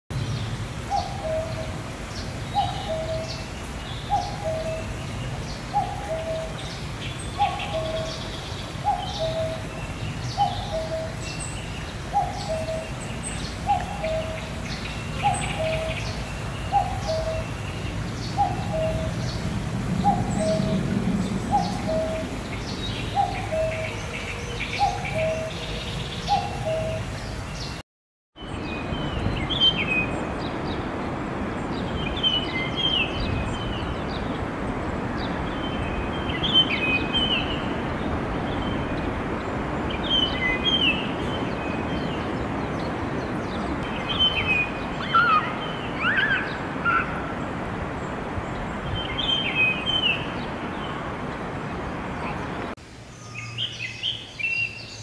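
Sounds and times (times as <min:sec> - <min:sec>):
small birds chirping: 0:28.4 - 0:55.0
cuckoo calling: 0:43.9 - 0:47.5.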